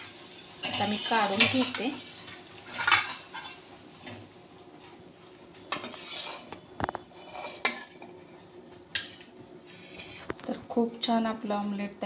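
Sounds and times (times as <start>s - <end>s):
metal spatula scraping a griddle: 2.7s - 3.6s, 5.7s - 6.6s, 7.2s - 8.4s.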